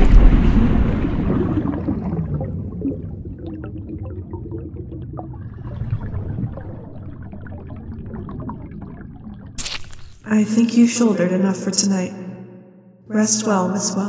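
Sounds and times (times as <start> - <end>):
water rushing: 0.0 - 10.2
small water drips: 0.0 - 10.3
water gurgling: 0.0 - 10.3.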